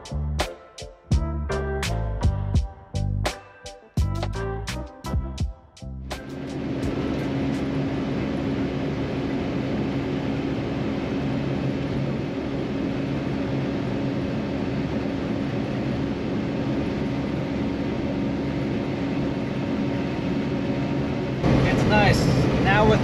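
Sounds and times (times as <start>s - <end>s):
truck engine droning: 6.1s - 23.0s
road and wind noise: 6.3s - 23.0s.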